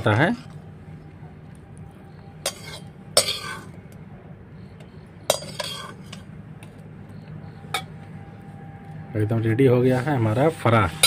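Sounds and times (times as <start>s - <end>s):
metal spoon clanking on metal: 2.4s - 3.7s, 5.3s - 6.3s.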